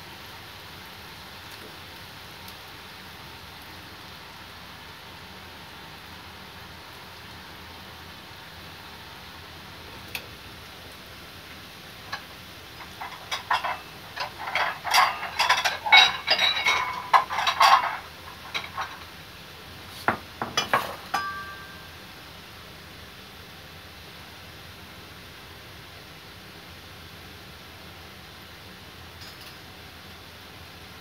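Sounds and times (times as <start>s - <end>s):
oil sizzling with fries frying: 0.0s - 31.0s
metal dishes clattering: 12.8s - 19.1s, 20.1s - 21.7s
bowl ringing: 21.1s - 22.0s.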